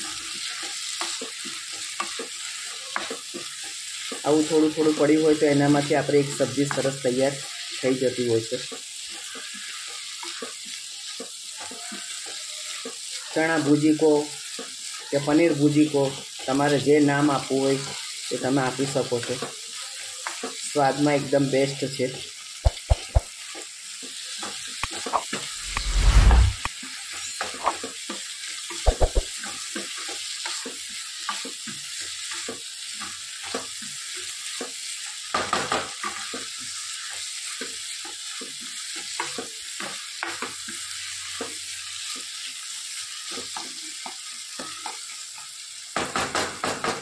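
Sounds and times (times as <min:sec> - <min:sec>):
food sizzling in a pan: 0:00.0 - 0:47.0
spatula tapping a pan: 0:22.6 - 0:23.3, 0:28.9 - 0:29.2.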